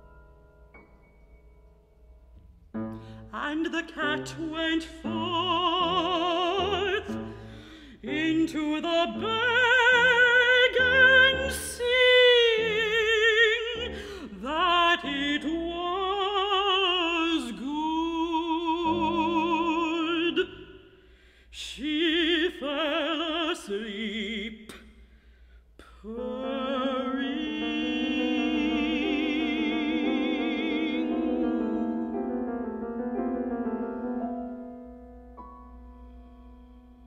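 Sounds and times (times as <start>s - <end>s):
grand piano accompaniment: 0.0s - 20.5s, 26.3s - 37.0s
operatic female voice singing: 3.3s - 7.3s, 7.9s - 20.8s, 21.6s - 24.7s, 25.8s - 32.4s.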